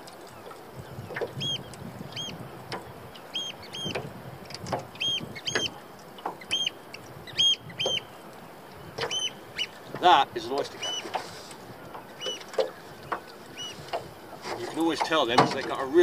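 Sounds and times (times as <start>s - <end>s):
shrill piping bird calls: 1.4s - 2.4s, 3.2s - 4.0s, 4.9s - 5.8s, 6.4s - 9.9s, 10.7s - 11.4s, 12.0s - 13.9s.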